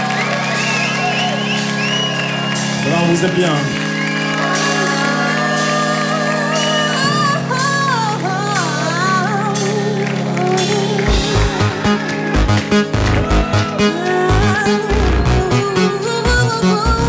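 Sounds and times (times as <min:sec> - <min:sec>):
sustained synth chords: 0:01.5 - 0:17.0
woman singing melismatic line: 0:05.0 - 0:12.0, 0:13.3 - 0:17.0.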